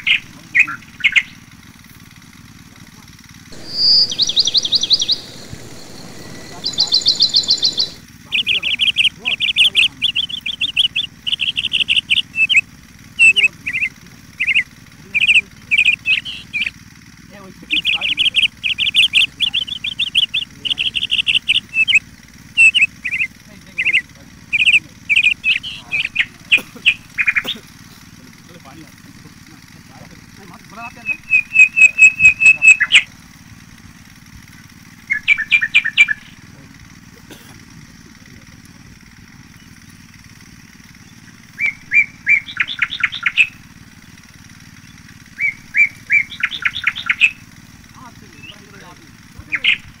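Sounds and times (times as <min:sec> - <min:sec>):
songbird chirping: 0:03.6 - 0:12.6, 0:13.2 - 0:16.7, 0:17.7 - 0:22.0, 0:22.6 - 0:27.5, 0:31.0 - 0:33.1, 0:41.6 - 0:43.6, 0:44.9 - 0:47.4.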